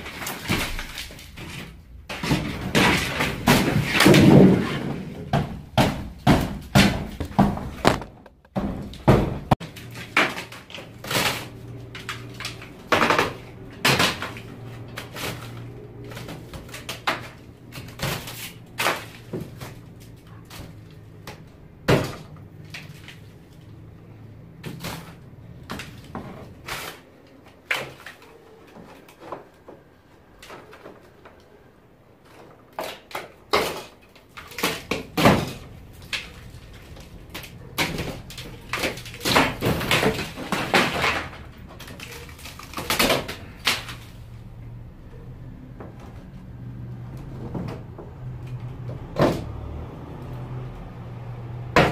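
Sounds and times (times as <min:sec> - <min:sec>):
wood cracking: 0:00.0 - 0:51.9
hammer knocking on wooden boards: 0:05.3 - 0:09.6.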